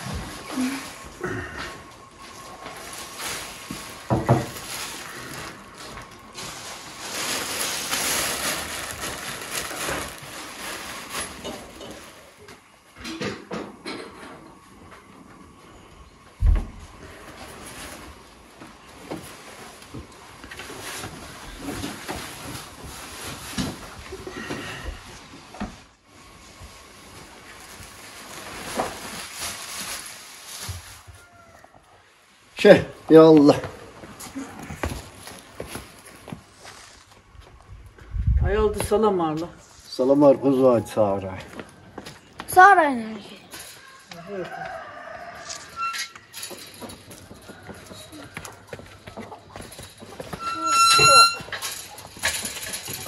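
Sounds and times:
plastic bag rustling: 0.0 - 12.5, 17.1 - 31.6, 34.4 - 37.2.

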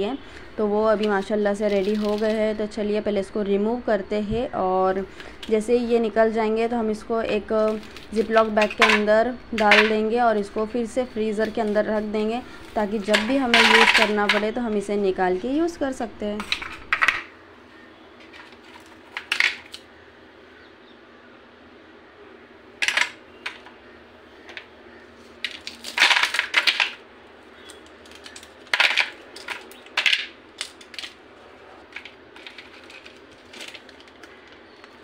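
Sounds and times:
ice cubes cracking from plastic tray: 1.1 - 2.4, 7.6 - 10.0, 12.5 - 14.5, 18.3 - 19.8, 22.8 - 23.6, 25.4 - 27.0, 27.6 - 31.2, 31.8 - 35.0
ice cubes clattering onto a plate: 7.7 - 10.0, 12.5 - 14.6, 16.4 - 17.3, 18.3 - 19.8, 22.8 - 23.6, 25.4 - 27.0, 27.7 - 31.2, 31.9 - 35.0.

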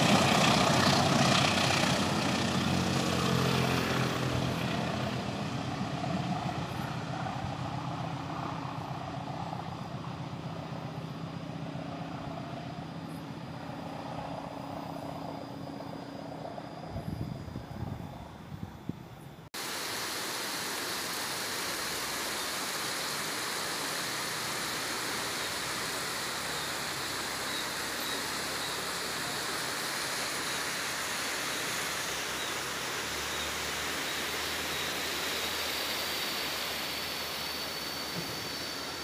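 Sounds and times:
faint high steady tone: 12.5 - 19.4
flowing water rushing: 19.6 - 39.0.

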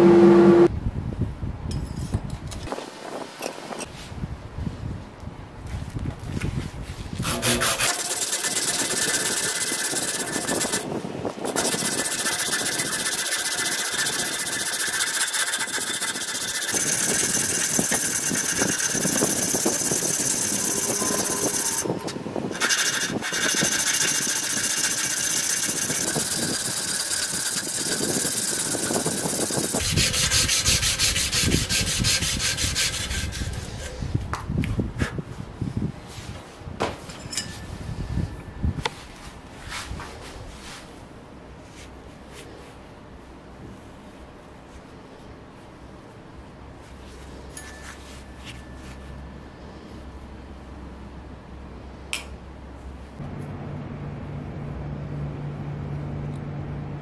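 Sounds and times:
sandpaper rasping on wood: 7.2 - 10.9, 11.5 - 21.9, 22.6 - 34.0.

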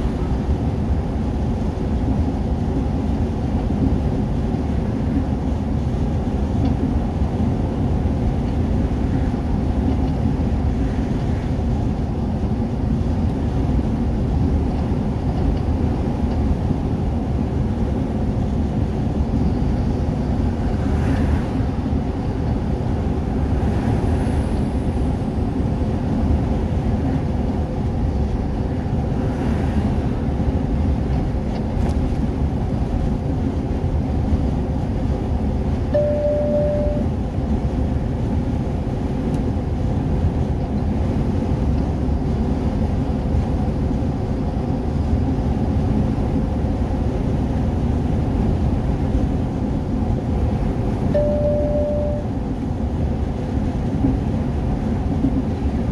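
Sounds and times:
road and engine noise in car cabin: 0.0 - 55.9
short beep: 35.9 - 37.1, 51.2 - 52.3.

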